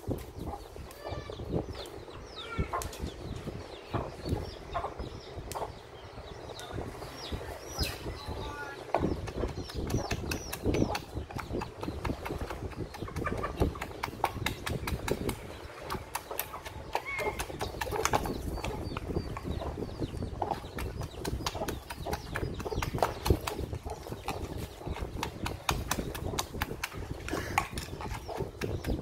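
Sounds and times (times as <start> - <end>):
wooden pestle pounding in mortar: 8.9 - 29.0.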